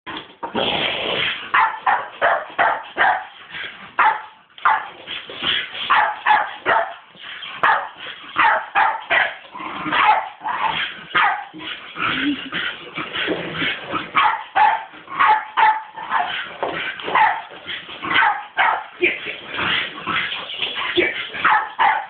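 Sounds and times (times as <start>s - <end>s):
dog barking: 1.5s - 3.3s, 4.0s - 4.9s, 5.9s - 7.0s, 7.6s - 10.4s, 11.2s - 11.5s, 14.2s - 16.3s, 17.1s - 17.5s, 18.1s - 18.9s, 21.4s - 22.0s.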